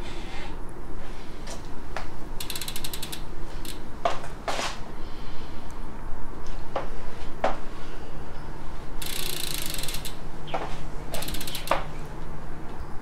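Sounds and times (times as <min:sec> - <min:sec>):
bicycle chain clunks: 0:02.4 - 0:03.8, 0:09.0 - 0:10.2, 0:11.1 - 0:11.9
freehub pawls clicking rapidly: 0:02.4 - 0:03.8, 0:09.0 - 0:10.2, 0:11.1 - 0:11.9.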